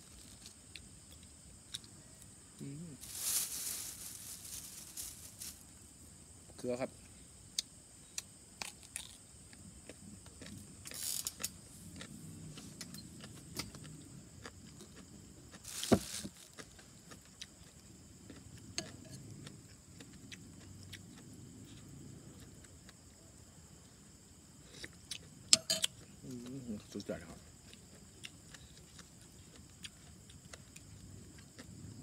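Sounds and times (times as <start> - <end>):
chewing and mouth clicks: 16.6 - 23.0, 24.7 - 26.6, 27.6 - 31.8
metal spoon clinking on bowl: 25.5 - 25.9.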